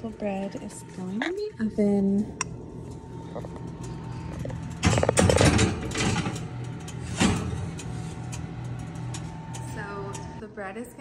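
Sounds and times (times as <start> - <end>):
steady low hum: 0.0 - 11.0
oven door shutting: 3.5 - 10.4
metal pan clattering on oven rack: 4.7 - 8.3.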